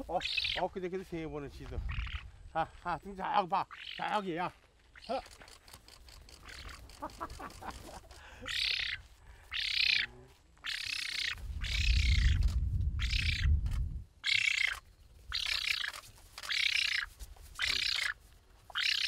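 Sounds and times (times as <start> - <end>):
spoonbill harsh wheezy calls: 0.0 - 0.6, 1.9 - 2.2, 3.7 - 4.2, 6.4 - 6.9, 8.4 - 12.4, 13.0 - 13.5, 14.2 - 19.0.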